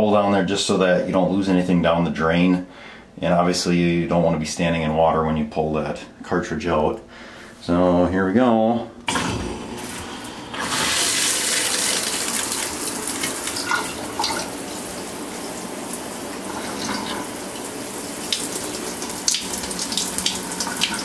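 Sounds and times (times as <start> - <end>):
water rushing from tub valve: 9.1 - 21.0.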